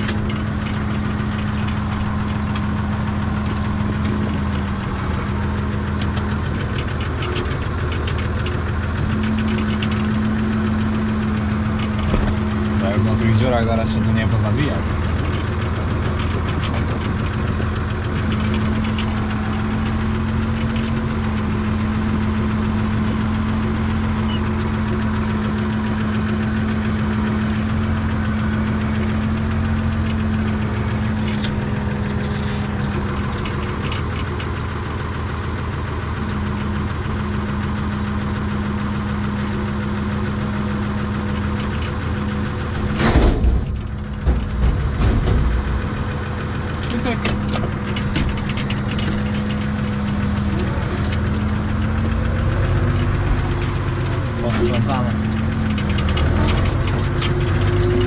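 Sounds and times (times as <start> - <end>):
tractor diesel engine running: 0.0 - 58.0
loud clunk: 11.9 - 12.6, 42.8 - 46.0.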